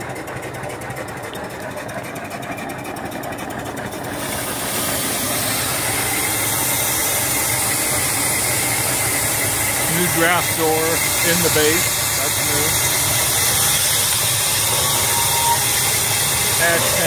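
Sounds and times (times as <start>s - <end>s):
steam hissing: 3.9s - 17.0s.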